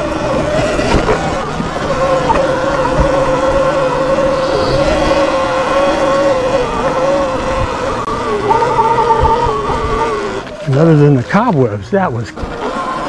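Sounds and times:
electric motor whining: 0:00.0 - 0:11.1
low rumble: 0:03.0 - 0:07.7.

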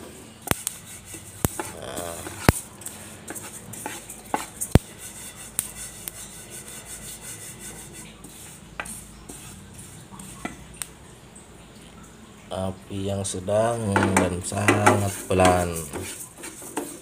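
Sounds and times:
seeds scraping in a pan: 0:00.4 - 0:10.5, 0:14.5 - 0:17.0
spatula knocking against pan: 0:13.9 - 0:17.0.

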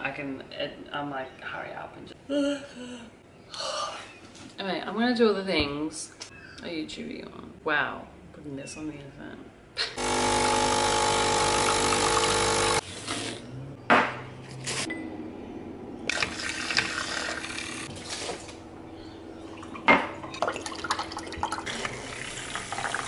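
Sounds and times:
coffee machine pump humming: 0:10.0 - 0:12.8, 0:16.0 - 0:23.0
liquid pouring into glass: 0:19.6 - 0:23.0.

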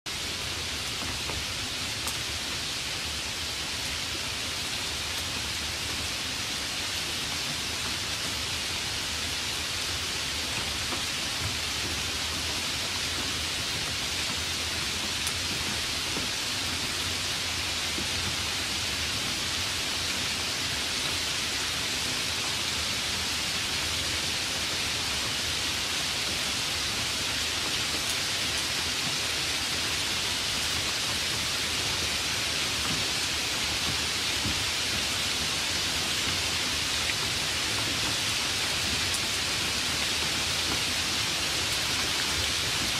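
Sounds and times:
steady rain: 0:00.1 - 0:42.9
raindrops ticking: 0:10.2 - 0:19.4.

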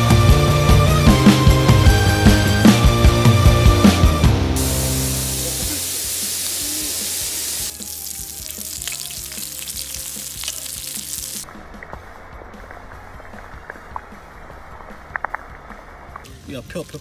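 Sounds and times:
meat sizzling on a griddle: 0:04.6 - 0:11.4.

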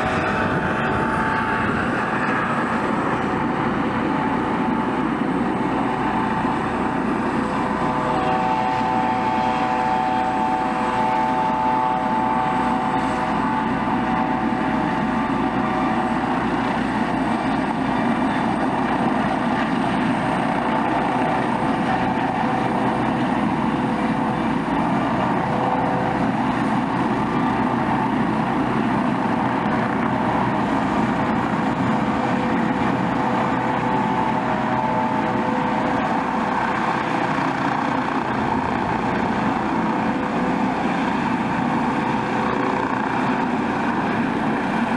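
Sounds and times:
helicopter rotor noise: 0:00.0 - 0:44.9
helicopter turbine whine: 0:00.0 - 0:44.9.

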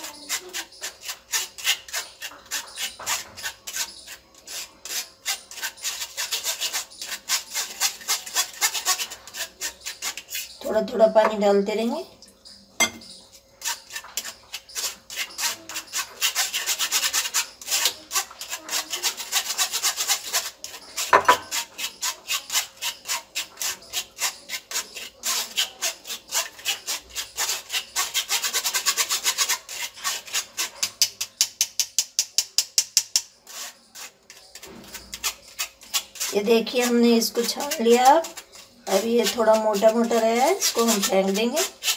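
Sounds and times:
spoon scraping paste through sieve: 0:00.0 - 0:41.9.

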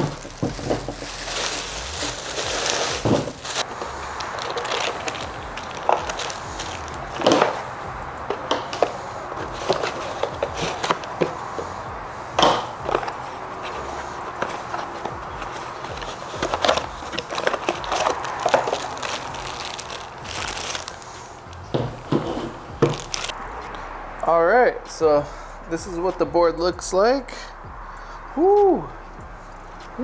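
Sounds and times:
knocks and thuds: 0:00.0 - 0:01.1, 0:03.0 - 0:03.4, 0:21.7 - 0:23.2
cardboard box rustling and scraping: 0:00.0 - 0:07.6, 0:08.7 - 0:11.8, 0:12.8 - 0:21.0, 0:21.7 - 0:23.3.

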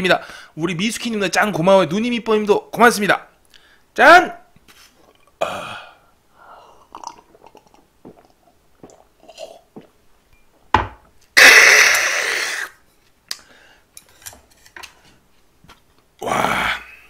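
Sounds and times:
man sipping and swallowing: 0:04.8 - 0:05.5, 0:06.7 - 0:10.0
glass set down knock: 0:10.7 - 0:11.1.

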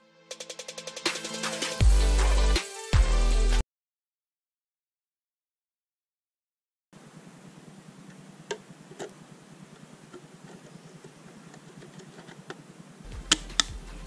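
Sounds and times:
faint low hum: 0:07.0 - 0:14.0.

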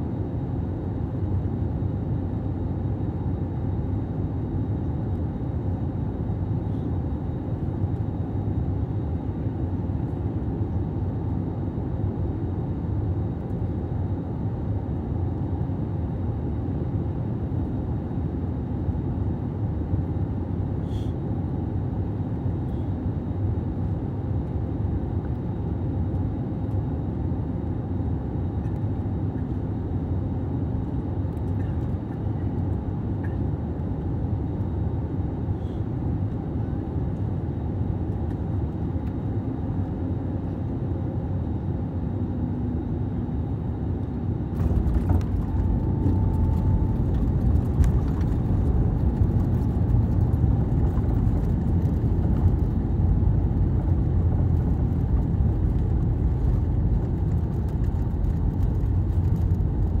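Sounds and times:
airliner engine and airflow hum: 0:00.0 - 1:00.0
rumble of plane rolling on runway: 0:00.0 - 1:00.0.

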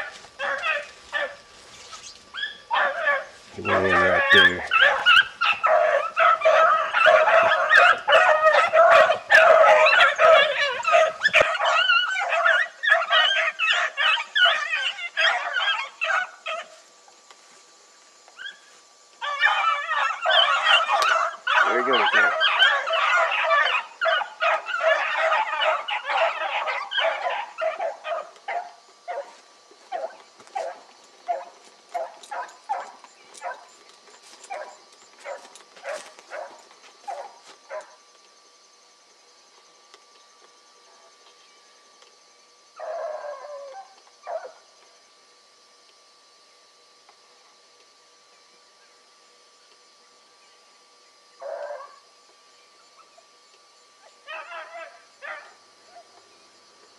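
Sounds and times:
hounds baying and yelping: 0:00.0 - 0:16.9, 0:18.3 - 0:38.0, 0:42.7 - 0:44.7, 0:51.4 - 0:52.1, 0:52.8 - 0:56.2.

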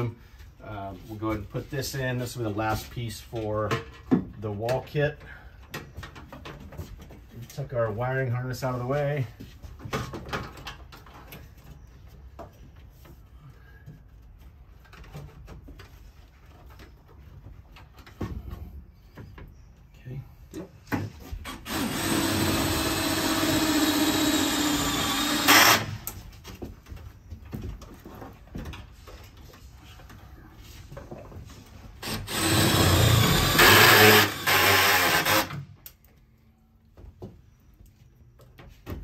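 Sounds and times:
cordless drill driving into metal: 0:21.4 - 0:26.2, 0:32.0 - 0:35.7.

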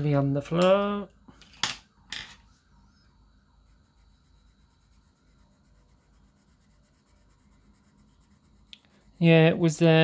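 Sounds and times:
pencil scratching on paper: 0:03.5 - 0:09.9.

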